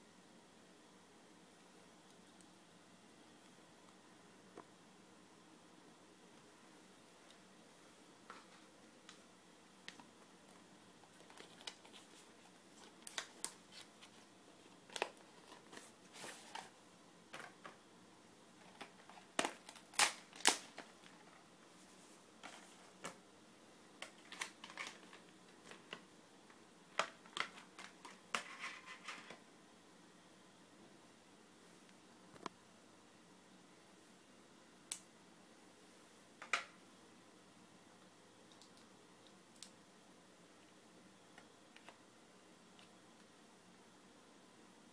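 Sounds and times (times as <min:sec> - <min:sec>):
plastic packaging rustling: 0:11.0 - 0:16.8, 0:18.6 - 0:21.4, 0:24.0 - 0:26.1, 0:26.9 - 0:29.4.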